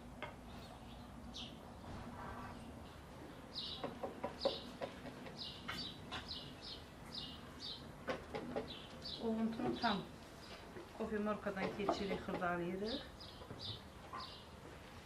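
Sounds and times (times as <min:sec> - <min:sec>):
bird chirping: 0:02.5 - 0:10.6, 0:12.8 - 0:14.6.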